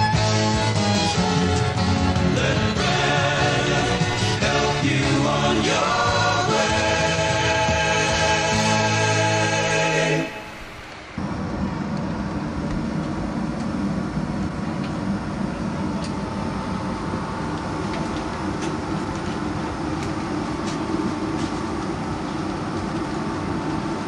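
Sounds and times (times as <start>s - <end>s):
aircraft cabin hum: 0.0s - 24.0s.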